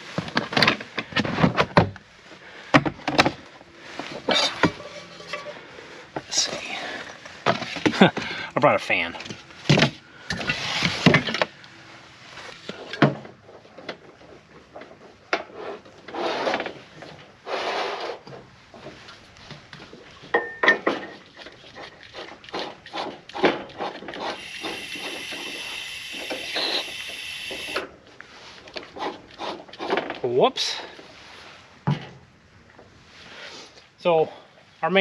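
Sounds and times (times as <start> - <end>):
propane gas hissing: 24.3 - 27.9.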